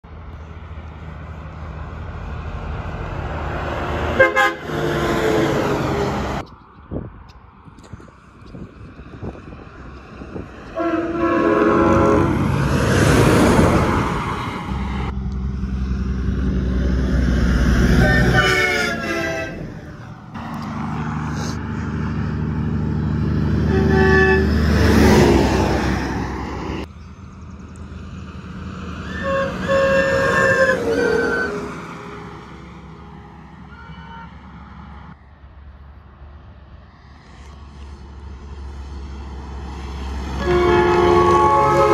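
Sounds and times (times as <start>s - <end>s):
passing trucks diesel drone: 0.0s - 41.9s
truck air horns blasting: 4.0s - 6.2s, 10.7s - 12.7s, 17.7s - 21.6s, 23.6s - 25.3s, 29.0s - 32.5s, 33.6s - 34.6s, 40.3s - 41.9s.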